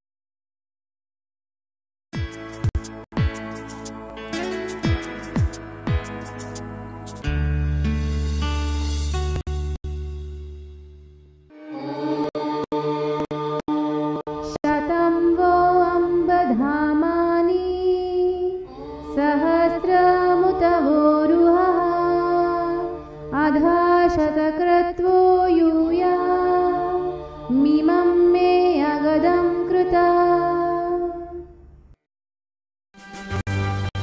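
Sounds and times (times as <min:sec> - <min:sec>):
woman chanting: 0:14.4 - 0:31.5.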